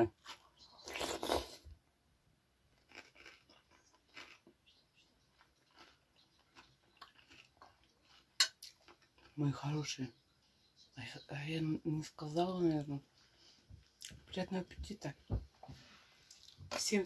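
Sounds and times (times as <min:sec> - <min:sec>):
slurping from a spoon: 0:00.8 - 0:01.6
wet chewing clicks: 0:02.8 - 0:09.4.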